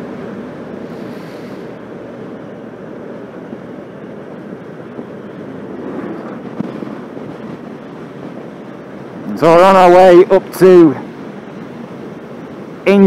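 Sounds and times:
motorcycle engine drone: 0.0s - 13.0s
wind rush: 0.0s - 13.0s.

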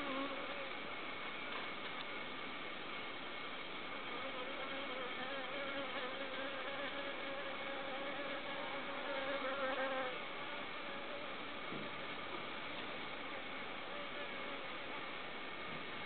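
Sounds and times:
flying insect buzzing: 0.0s - 0.8s, 4.0s - 11.3s.

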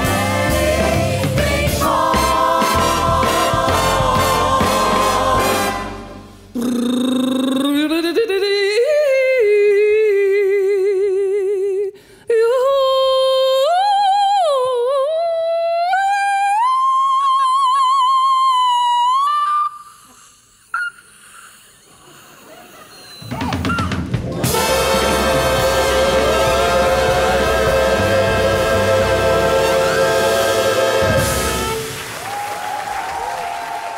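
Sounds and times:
jazz big band chord: 0.0s - 6.5s, 24.0s - 32.1s
woman singing with vibrato: 6.6s - 19.8s.

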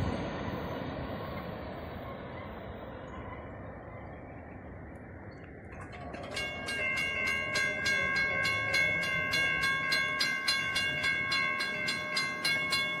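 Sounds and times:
railroad crossing bell ringing: 5.7s - 13.0s.

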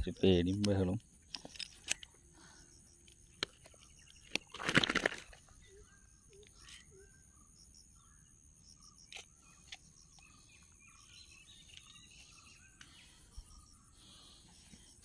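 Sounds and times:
faint insect chirring: 0.0s - 15.0s
faint bird chirps: 5.3s - 15.0s.

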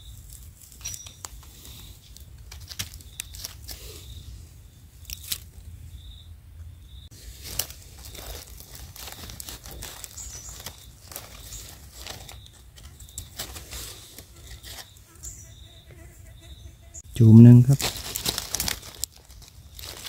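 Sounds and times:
dry leaves rustling and crackling: 0.0s - 4.0s, 7.1s - 15.0s, 17.7s - 20.0s.

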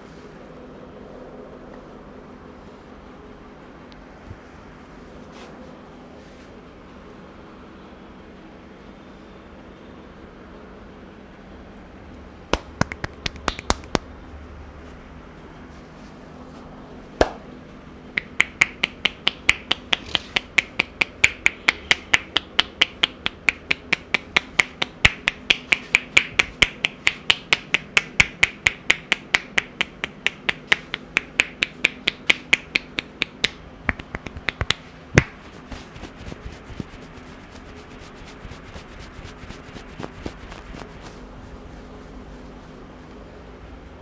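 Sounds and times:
hair cracking between fingers: 12.5s - 14.1s, 30.3s - 41.1s.

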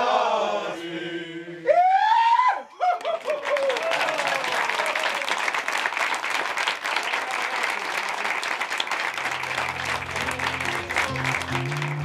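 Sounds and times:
crowd applauding: 2.9s - 12.0s.

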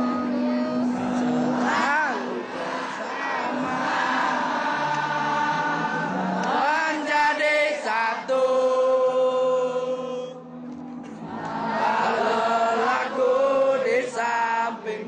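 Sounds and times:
crowd chanting in unison: 0.0s - 10.4s, 11.2s - 15.0s.

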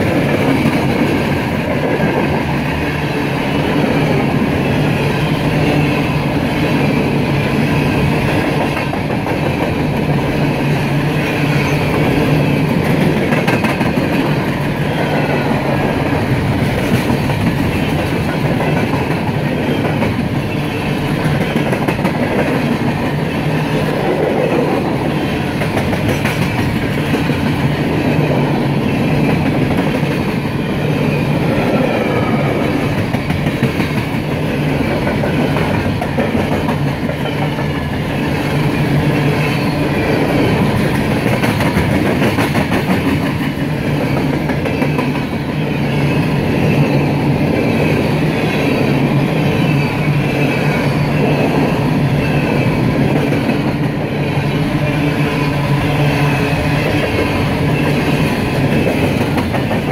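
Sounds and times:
freight train wheels on rail: 0.0s - 59.9s.

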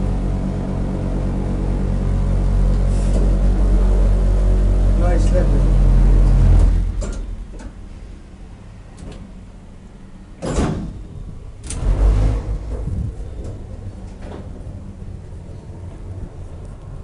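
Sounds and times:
low steady hum: 0.0s - 17.0s
elevator doors sliding swish: 2.7s - 4.0s, 10.4s - 17.0s
elevator door click and thud: 10.4s - 12.0s.

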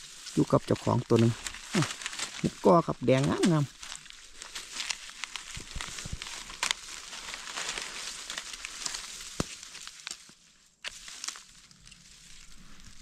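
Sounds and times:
dry leaves crackling and rustling: 0.0s - 13.0s.

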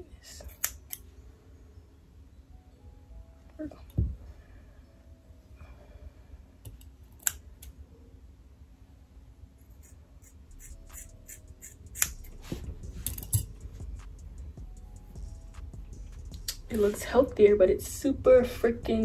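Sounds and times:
scissors snipping hair: 0.3s - 1.0s, 9.7s - 12.4s.

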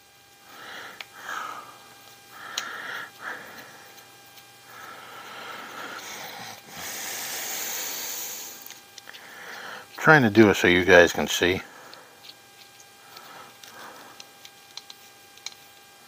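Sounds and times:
person breathing through nose: 0.5s - 3.9s, 4.7s - 10.0s
faint clicks of small tools: 2.0s - 2.7s, 11.9s - 15.7s.

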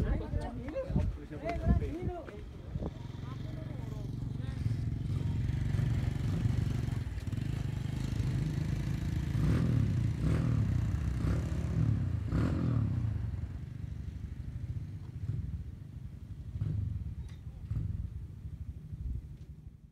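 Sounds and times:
vehicle engine revving: 2.9s - 13.3s.

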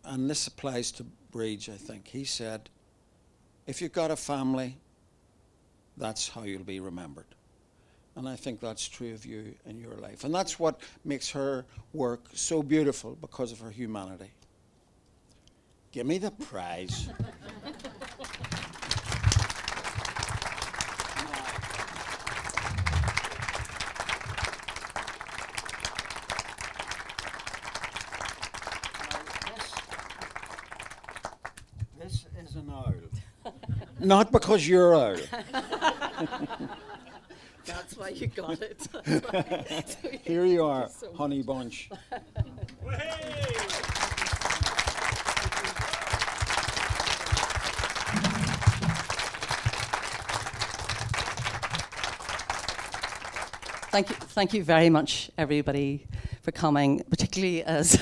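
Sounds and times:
audience applauding: 17.0s - 31.7s, 42.8s - 54.4s.

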